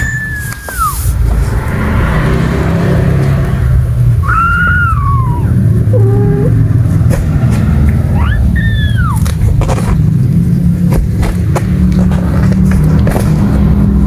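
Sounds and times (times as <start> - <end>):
kitten meowing: 0.0 - 1.1, 4.2 - 6.6, 8.1 - 9.3
steady low rumble: 0.0 - 14.0.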